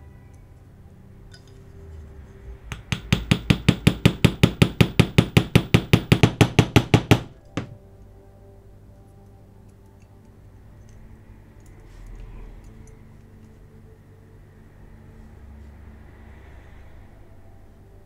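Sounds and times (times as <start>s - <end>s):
small hammer tapping on metal: 2.7s - 7.8s.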